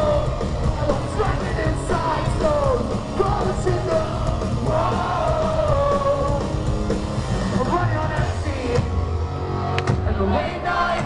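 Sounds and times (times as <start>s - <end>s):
singer yelling and singing: 0.0s - 6.5s
pop-punk band playing live: 0.0s - 11.0s.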